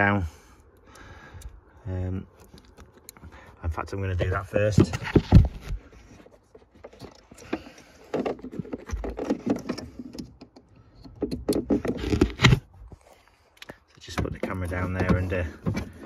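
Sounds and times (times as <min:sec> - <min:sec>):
handling scraping and rustling: 0:02.2 - 0:16.0.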